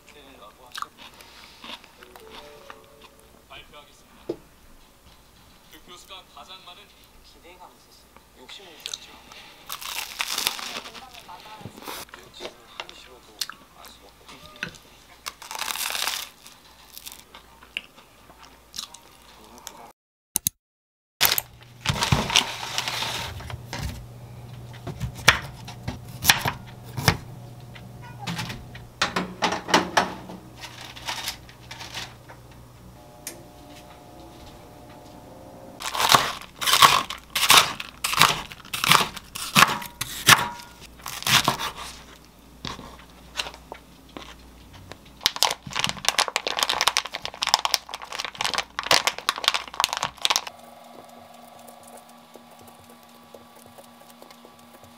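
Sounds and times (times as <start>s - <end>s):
plastic bags crinkling: 9.3s - 12.0s, 15.2s - 17.4s, 21.2s - 23.5s, 30.6s - 32.2s, 35.8s - 42.0s, 45.2s - 54.9s
plastic pack pulled open: 9.7s - 11.4s, 15.3s - 17.3s, 35.8s - 39.3s, 45.2s - 50.5s
low steady hum: 21.2s - 45.3s, 48.4s - 54.9s.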